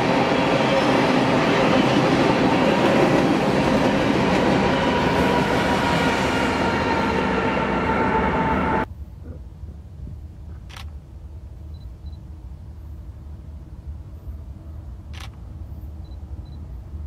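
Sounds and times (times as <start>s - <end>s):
freight train rumbling: 0.0s - 17.0s
camera shutter clicks: 10.7s - 10.9s, 15.1s - 15.4s.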